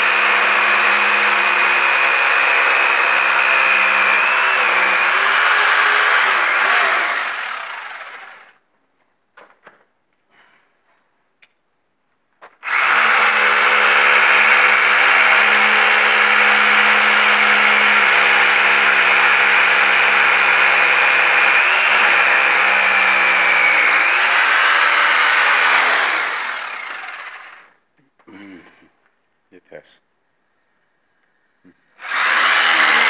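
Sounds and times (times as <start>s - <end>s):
handheld power tool running: 0.0s - 8.5s, 12.6s - 27.7s, 32.0s - 33.0s.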